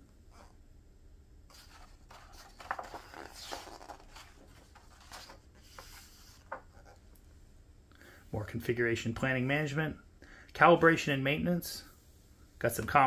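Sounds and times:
book page rustling: 0:01.5 - 0:07.0.

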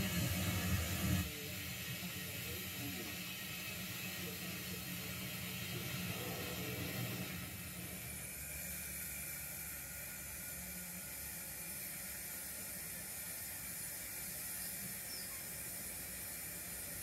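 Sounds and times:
steam hiss: 0:00.0 - 0:17.0.

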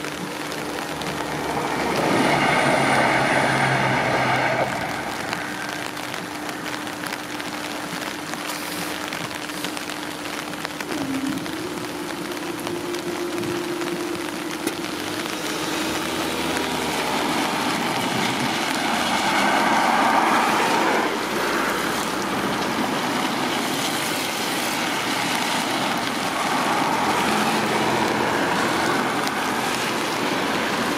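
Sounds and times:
tyres hissing on wet road: 0:00.0 - 0:30.9
low steady hum: 0:04.7 - 0:19.0.

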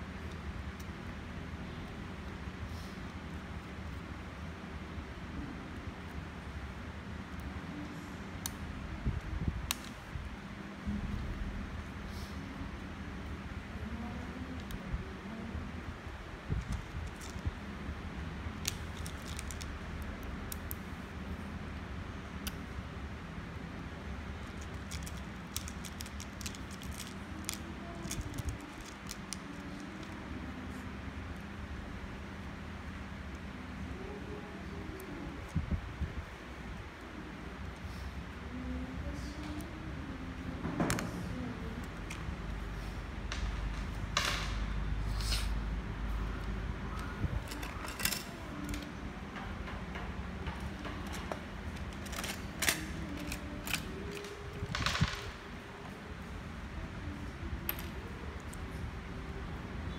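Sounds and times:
low background hum: 0:00.0 - 0:59.9
plastic construction pieces clicking: 0:16.6 - 0:17.5, 0:18.6 - 0:20.8, 0:24.4 - 0:30.2, 0:47.4 - 0:48.9, 0:50.4 - 0:55.4.

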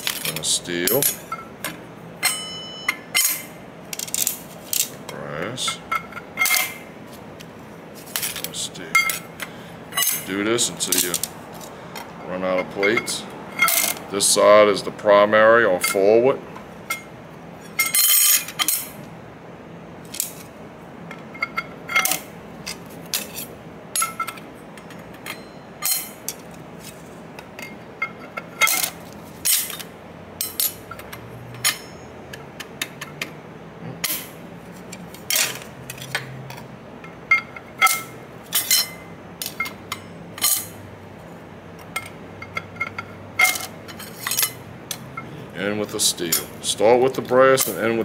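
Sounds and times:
metal clutch plates clinking: 0:00.0 - 0:06.8, 0:34.0 - 0:40.9, 0:41.8 - 0:45.3.

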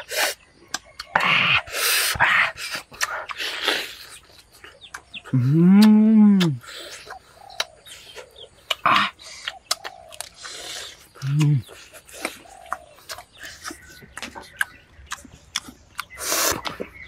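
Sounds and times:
chewing and lip-smacking: 0:00.0 - 0:17.0.

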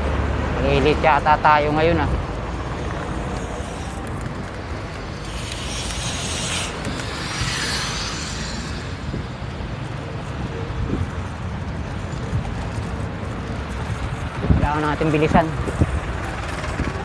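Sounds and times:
road traffic noise: 0:00.0 - 0:17.0
wind rumble on microphone: 0:01.0 - 0:17.0
hiss: 0:02.8 - 0:09.8.

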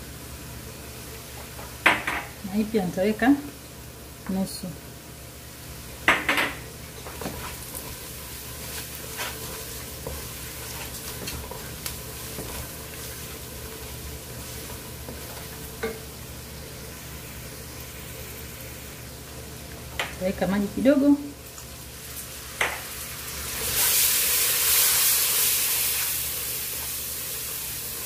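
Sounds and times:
food sizzling in oil: 0:00.0 - 0:28.0
wooden spoon scraping a pot: 0:07.0 - 0:15.6.

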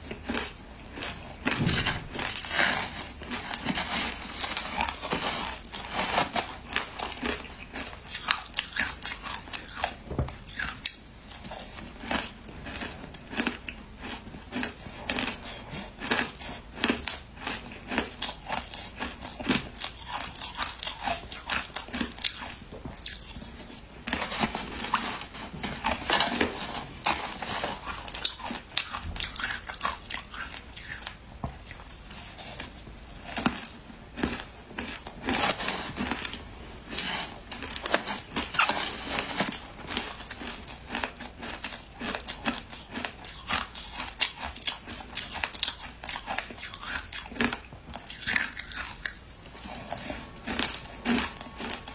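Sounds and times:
shaved ice crunching: 0:33.2 - 0:51.9.

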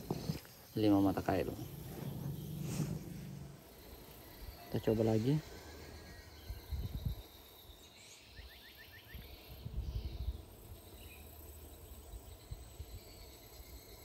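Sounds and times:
faint insect hum: 0:00.0 - 0:14.0
brief low rumbles: 0:01.2 - 0:03.8.

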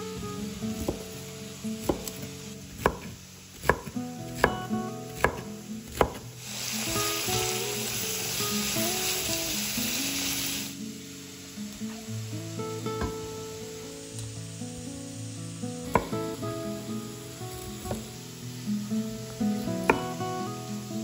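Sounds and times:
food sizzling in hot oil: 0:00.0 - 0:21.0
soft guitar music: 0:00.0 - 0:21.0
knife chopping on a cutting board: 0:00.8 - 0:01.0, 0:01.8 - 0:06.2, 0:15.9 - 0:16.1, 0:17.8 - 0:18.1.

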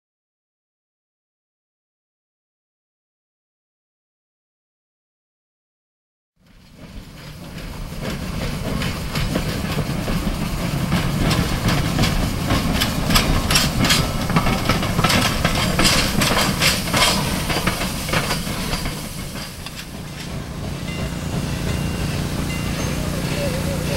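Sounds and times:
steam locomotive rumbling on rails: 0:06.4 - 0:23.9
steam hissing: 0:06.7 - 0:23.9.

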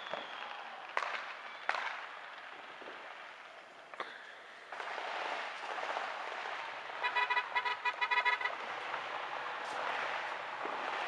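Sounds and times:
crackling hiss of fireworks: 0:00.0 - 0:07.1, 0:08.4 - 0:11.0.

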